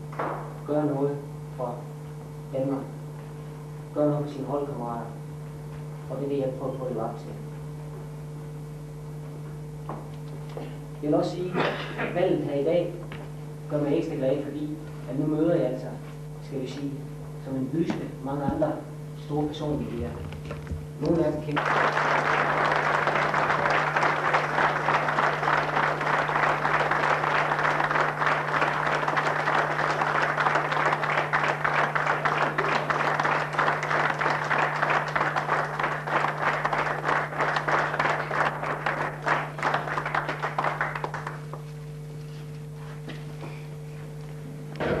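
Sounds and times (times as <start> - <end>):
audience applauding: 21.4 - 41.7.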